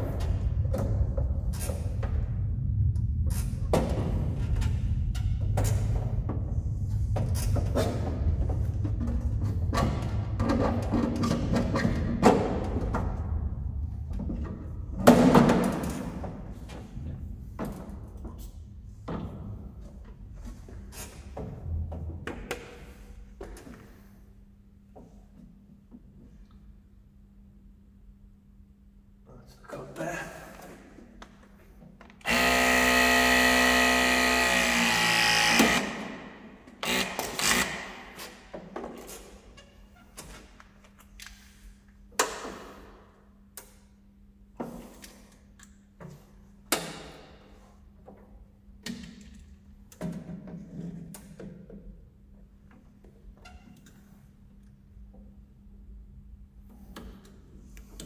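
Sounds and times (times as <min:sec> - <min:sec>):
low rumble: 0:00.0 - 0:11.6, 0:12.6 - 0:15.1
hydraulic tool motor whine: 0:32.3 - 0:36.0, 0:36.8 - 0:37.9.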